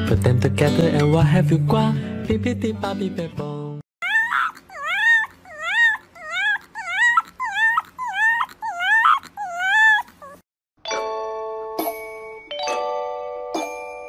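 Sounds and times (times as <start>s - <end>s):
puppy whining yips: 4.0s - 10.4s.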